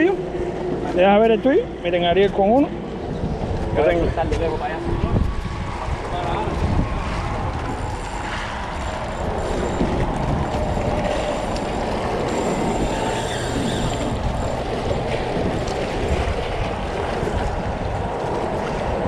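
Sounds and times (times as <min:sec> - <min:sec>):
wind buffeting microphone: 0:00.0 - 0:19.0
water washing against rocks: 0:05.2 - 0:19.0.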